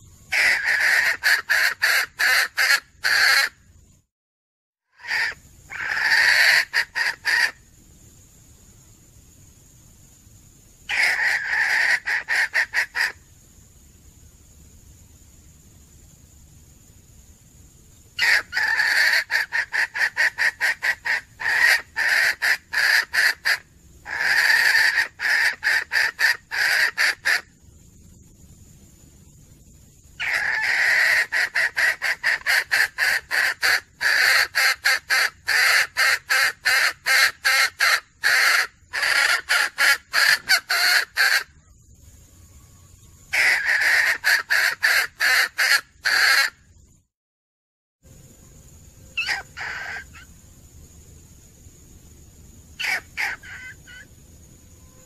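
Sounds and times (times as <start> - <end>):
hen clucking: 0.3 - 3.5, 18.2 - 27.5, 30.2 - 41.5, 43.4 - 46.6.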